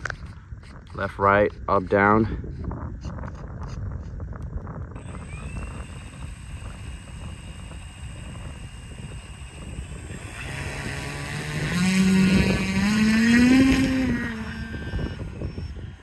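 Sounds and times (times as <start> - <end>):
wind rumble on microphone: 0.0 - 16.0
model airplane motor buzzing: 4.8 - 16.0.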